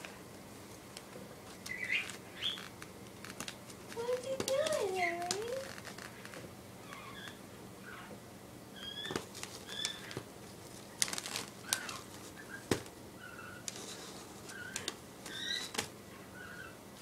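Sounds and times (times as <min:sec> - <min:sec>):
paper rustling and crackling: 0:01.4 - 0:06.4, 0:09.0 - 0:12.9, 0:13.6 - 0:15.9
cat chirping: 0:01.7 - 0:02.7, 0:08.8 - 0:10.1, 0:14.5 - 0:16.8.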